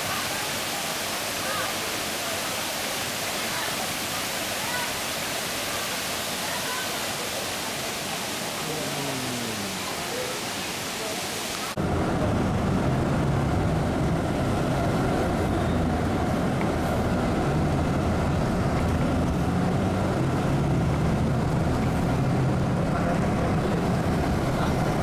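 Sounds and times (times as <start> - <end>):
vehicle engine and road rumble: 11.7 - 25.0.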